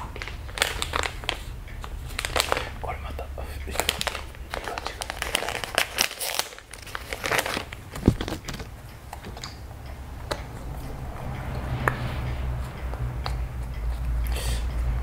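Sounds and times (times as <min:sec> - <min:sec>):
squishy toy crinkling and clicking: 0:00.0 - 0:02.8, 0:03.7 - 0:09.6
low rumble: 0:07.8 - 0:15.0.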